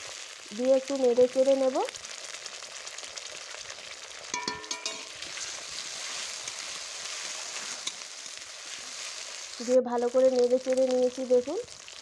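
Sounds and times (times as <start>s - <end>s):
paste sizzling in hot oil: 0.0s - 12.0s
metal spatula stirring: 4.2s - 9.5s
spatula ringing on pan: 4.3s - 5.2s.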